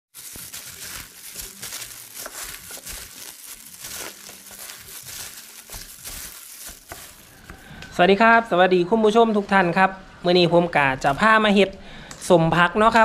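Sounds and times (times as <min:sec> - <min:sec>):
wet leaves rustling: 0:00.1 - 0:07.6.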